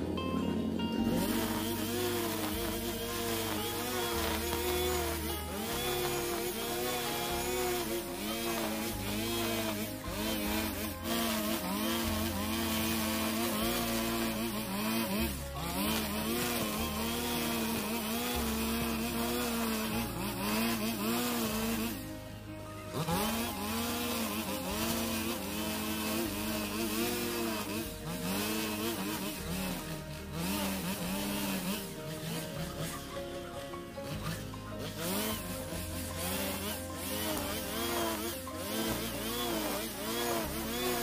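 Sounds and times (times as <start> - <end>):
brush cutter cutting grass: 0.0 - 41.0.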